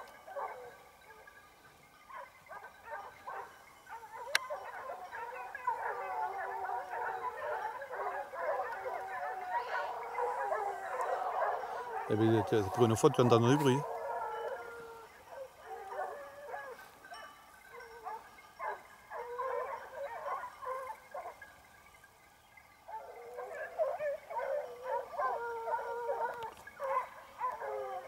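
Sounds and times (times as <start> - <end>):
hounds baying: 0.0 - 22.0, 22.6 - 28.0.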